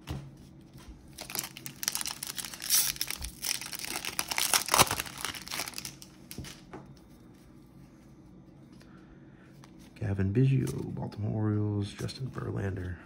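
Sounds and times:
foil wrapper tearing and crinkling: 0:01.1 - 0:06.6.

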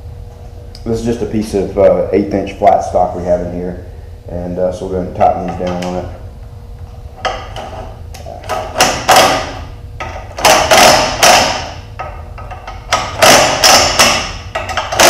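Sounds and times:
impact driver hammering: 0:08.5 - 0:11.8, 0:12.4 - 0:15.0.

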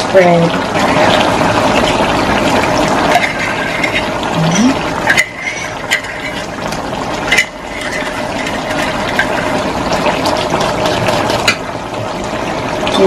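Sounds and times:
stew simmering in a wok: 0:00.0 - 0:13.0
utensil scraping a pan: 0:03.0 - 0:09.7.

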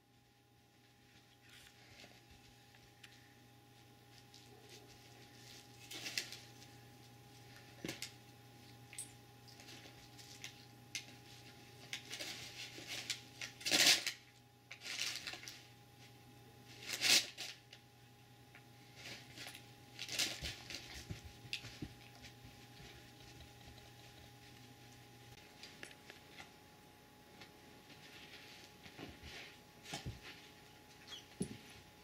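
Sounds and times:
faint steady hum: 0:00.0 - 0:32.0
scuffling and rustling paper: 0:03.7 - 0:08.2, 0:09.6 - 0:17.8, 0:18.8 - 0:26.6, 0:27.4 - 0:30.9.

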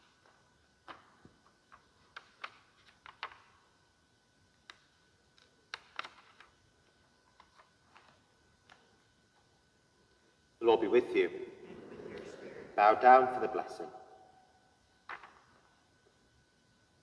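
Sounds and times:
pages turning with clicks: 0:00.8 - 0:03.6, 0:04.6 - 0:06.6, 0:07.3 - 0:08.9, 0:15.1 - 0:15.4.

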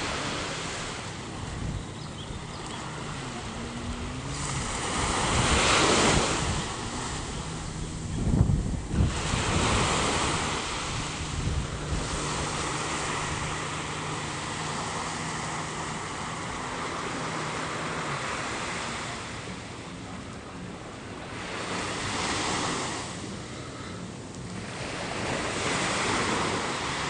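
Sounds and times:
wind buffeting the microphone: 0:00.0 - 0:16.8
surf washing onto a beach: 0:00.0 - 0:27.0.

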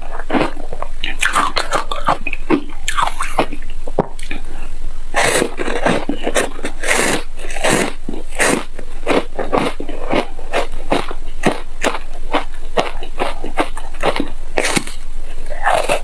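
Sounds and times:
crunching chews of ice bar: 0:07.5 - 0:15.0.

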